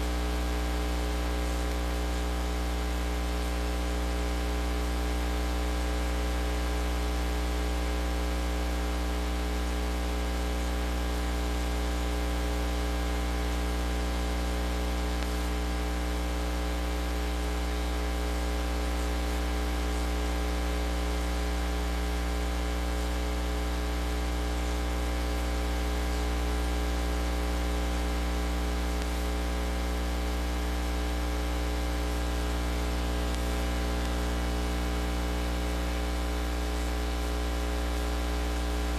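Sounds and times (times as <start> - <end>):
electrical mains hum: 10.8 - 38.9.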